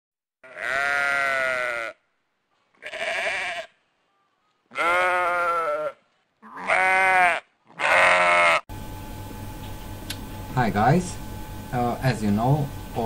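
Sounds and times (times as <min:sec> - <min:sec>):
animal bleating: 0:00.4 - 0:02.1, 0:02.7 - 0:08.7.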